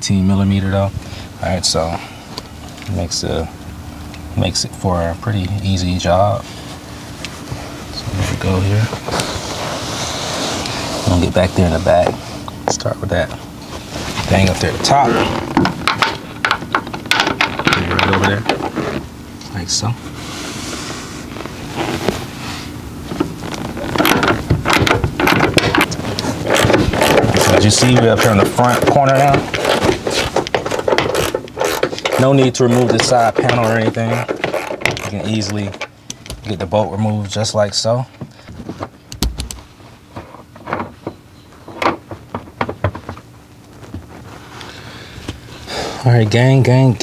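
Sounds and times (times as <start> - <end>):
hand tools clicking and knocking: 24.0 - 35.6.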